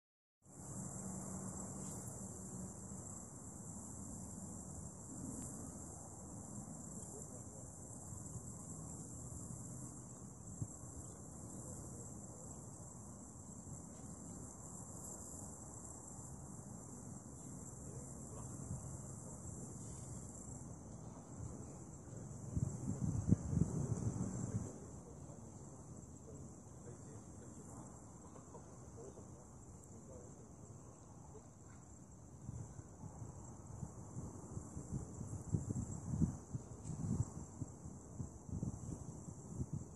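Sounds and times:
crickets chirping: 0.4s - 39.9s.

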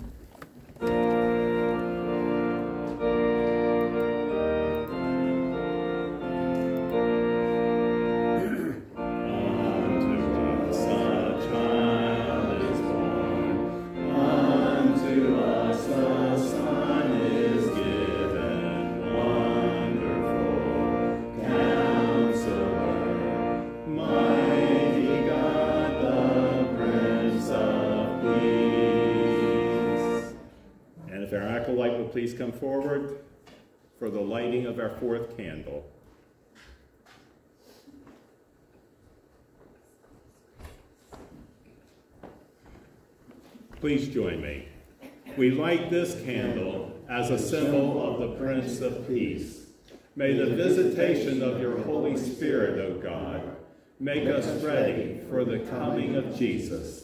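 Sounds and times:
organ music: 0.6s - 32.7s, 45.4s - 57.0s.

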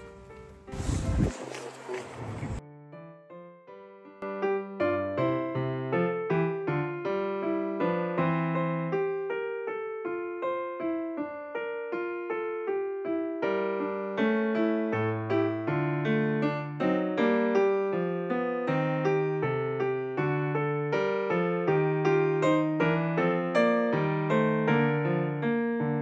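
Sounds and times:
electric piano music: 0.0s - 26.0s.

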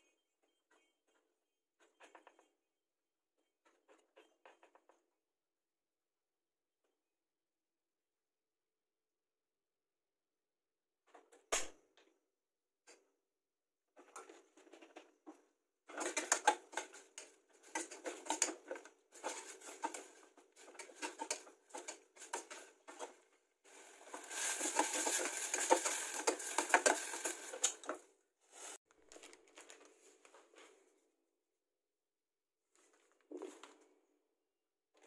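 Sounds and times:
metal spoon scraping a saucepan: 23.7s - 28.0s.

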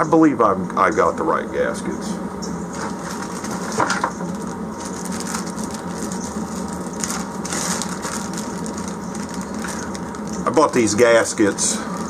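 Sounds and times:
low hum: 0.0s - 12.0s
plastic bag crinkling: 2.8s - 12.0s.

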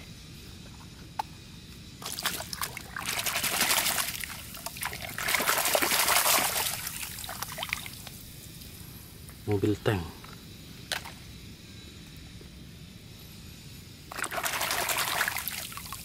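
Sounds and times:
water splashing and sloshing: 2.0s - 8.0s, 14.1s - 15.6s.

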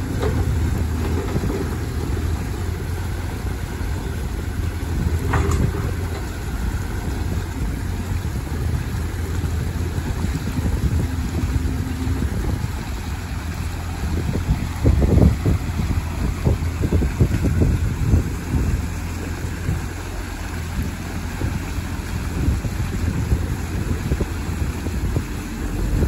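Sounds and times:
diesel excavator engine running: 0.0s - 26.0s
water rushing: 0.0s - 26.0s.

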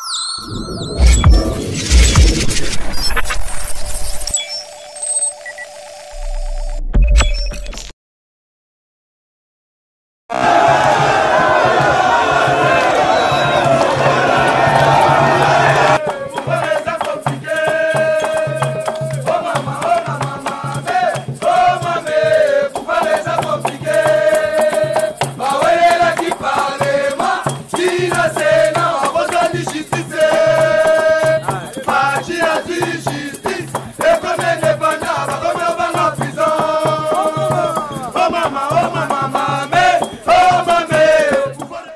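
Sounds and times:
pulsing bass beat: 0.6s - 4.3s, 6.2s - 7.5s
shaker rhythm: 11.6s - 41.9s
person singing: 15.8s - 41.9s.

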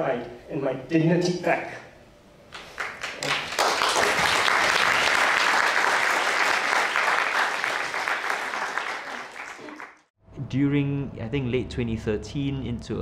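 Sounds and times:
audience applauding: 2.6s - 10.1s.

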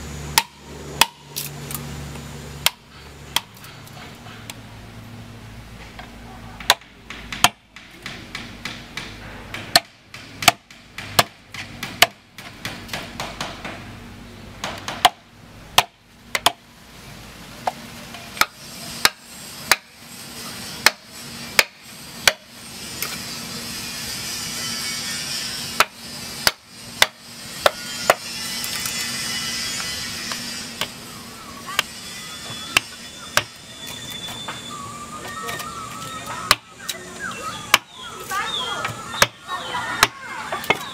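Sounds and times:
mallet striking chisel into wood: 0.4s - 1.3s, 6.6s - 13.8s, 14.6s - 15.2s, 25.8s - 28.2s.

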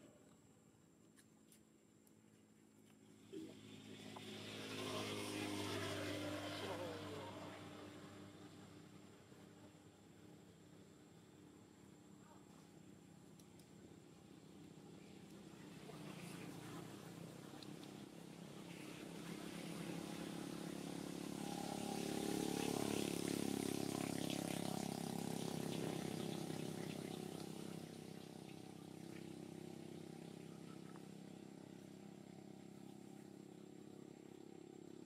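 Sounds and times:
vehicle passing: 3.2s - 9.0s, 15.4s - 33.5s.

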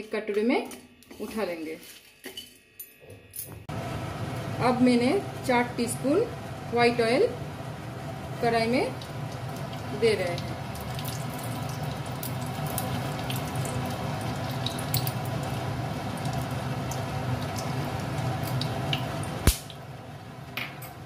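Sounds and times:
oil crackling in hot pan: 7.4s - 21.0s.

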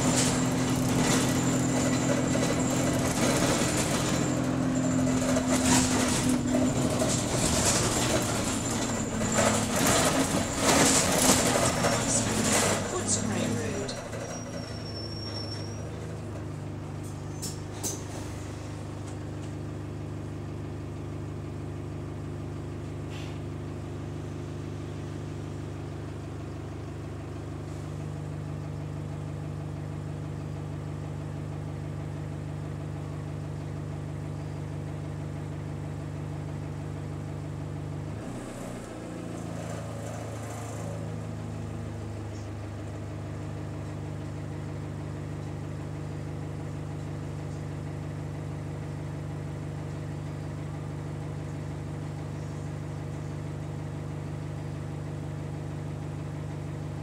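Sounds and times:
bus diesel engine running: 0.0s - 57.0s
brief air hiss: 23.1s - 23.4s.

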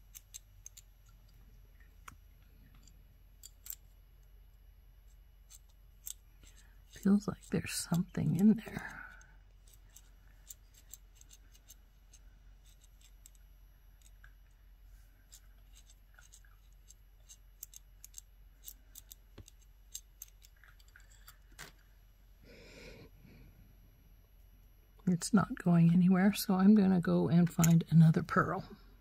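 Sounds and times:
bead reamer scratching: 5.1s - 13.4s, 15.2s - 20.5s.

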